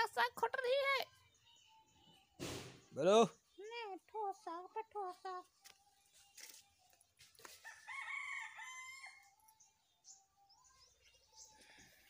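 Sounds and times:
faint rooster crowing: 0:07.6 - 0:09.4.

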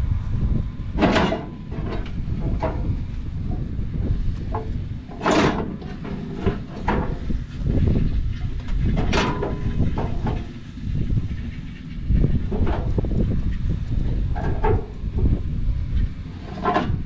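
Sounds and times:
metal pry bar clanking and scraping: 0:01.0 - 0:07.8, 0:08.7 - 0:13.2, 0:14.3 - 0:15.0, 0:16.3 - 0:17.0.

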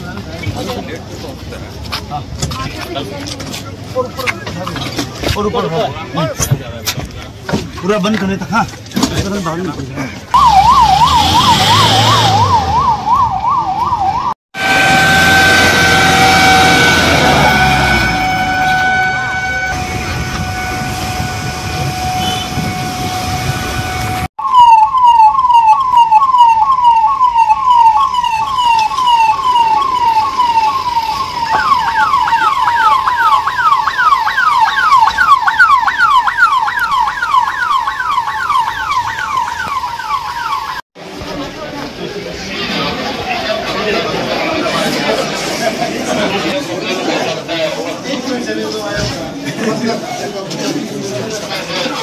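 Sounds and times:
emergency vehicle siren wailing: 0:10.3 - 0:40.8.

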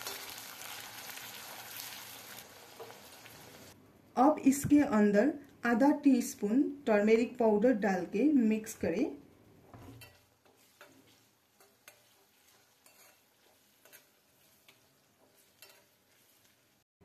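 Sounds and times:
faint frying sizzle: 0:00.0 - 0:03.8, 0:08.3 - 0:16.9
steel spoon scraping pan: 0:09.7 - 0:16.8.

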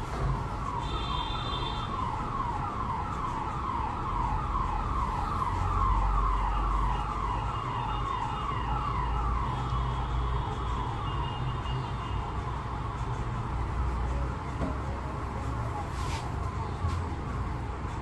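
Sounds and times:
electronic siren yelping: 0:01.4 - 0:10.2.

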